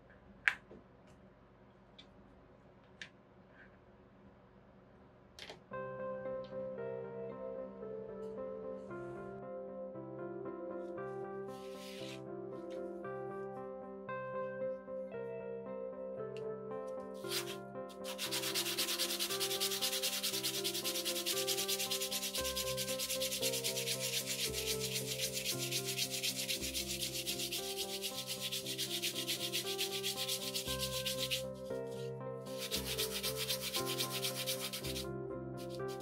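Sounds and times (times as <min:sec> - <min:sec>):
hand sanding on sandpaper: 0:11.6 - 0:12.2, 0:17.2 - 0:31.6, 0:32.5 - 0:35.0, 0:35.6 - 0:36.0.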